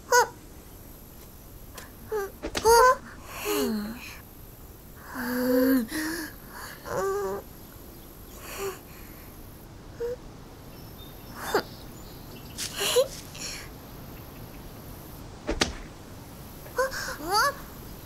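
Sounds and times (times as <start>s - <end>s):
cartoon babbling and squeaking voices: 0.0s - 0.4s, 2.0s - 4.2s, 16.7s - 17.6s.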